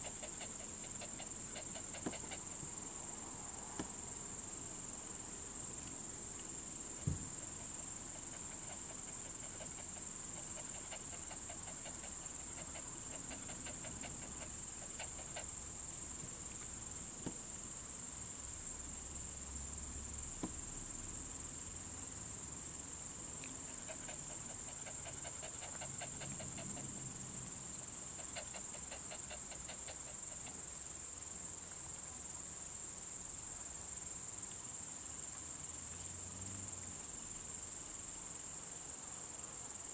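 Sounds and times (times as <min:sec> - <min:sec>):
crickets chirring: 0:00.0 - 0:39.9
insects trilling: 0:00.0 - 0:39.9
soft knock: 0:07.0 - 0:07.3.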